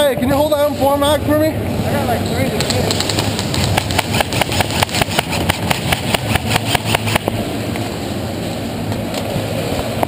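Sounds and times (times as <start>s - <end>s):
running footsteps and gear clatter: 2.6s - 7.1s.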